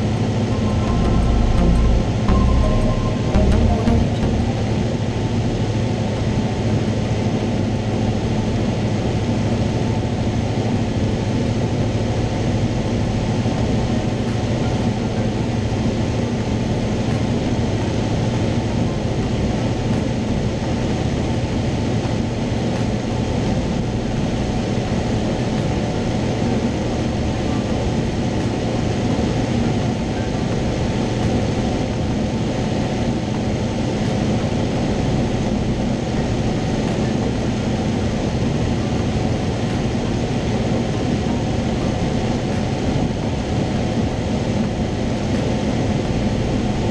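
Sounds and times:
propeller plane engine drone: 0.0 - 46.9.

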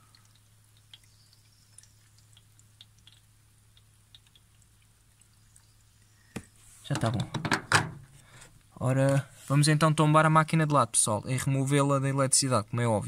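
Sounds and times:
water dripping: 0.0 - 7.3.

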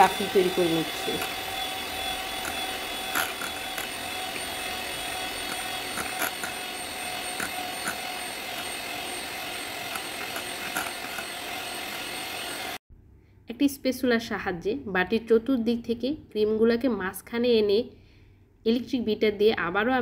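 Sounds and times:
electric hand mixer whipping cream: 0.0 - 12.8.

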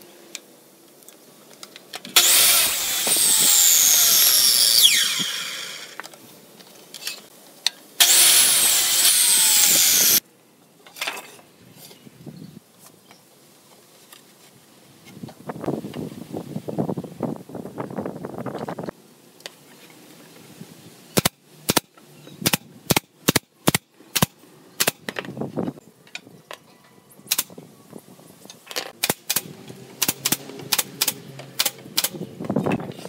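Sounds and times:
nail gun firing into wood: 21.2 - 25.1, 29.0 - 32.2.

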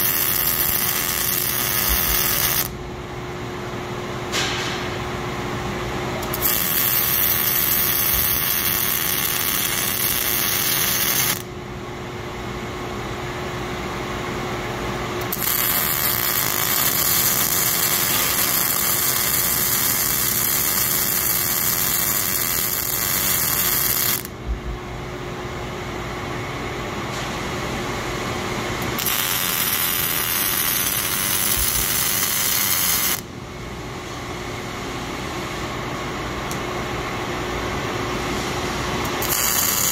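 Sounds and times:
welding torch crackling and hissing: 0.0 - 2.8, 6.2 - 11.5, 15.2 - 24.3, 28.7 - 33.3, 38.1 - 39.9.

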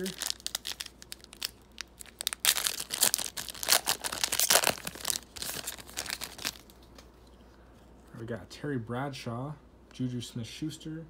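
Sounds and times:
wrapper tearing and crinkling: 0.0 - 6.8.

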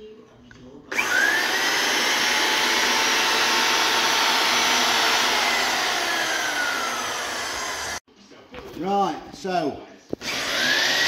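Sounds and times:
electric drill motor whine: 0.9 - 8.0, 10.2 - 11.0.

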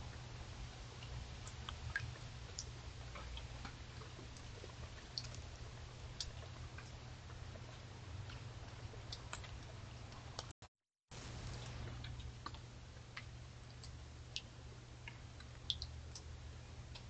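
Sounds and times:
animal feeding clicks and crunches: 9.0 - 10.5.

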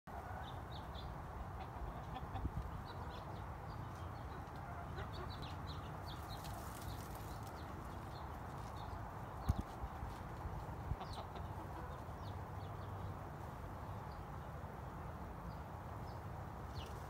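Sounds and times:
chickens clucking softly: 1.4 - 5.9, 9.5 - 12.4.

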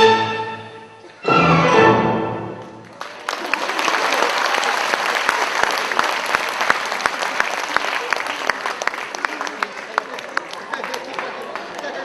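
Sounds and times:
audience applauding: 2.6 - 12.0.

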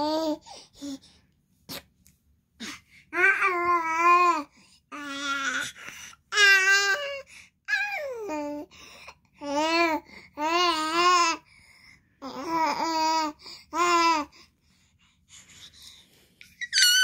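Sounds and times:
baby babbling and cooing: 0.0 - 1.0, 2.6 - 8.7, 9.3 - 11.5, 12.2 - 14.4, 16.4 - 17.0
baby squealing: 16.5 - 17.0.

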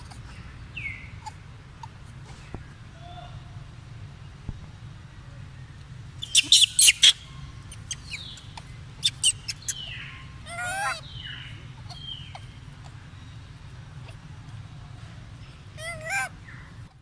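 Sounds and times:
wavering animal call: 15.8 - 16.4.

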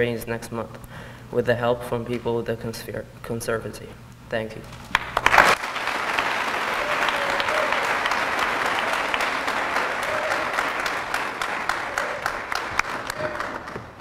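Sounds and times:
audience applauding: 4.9 - 14.0.

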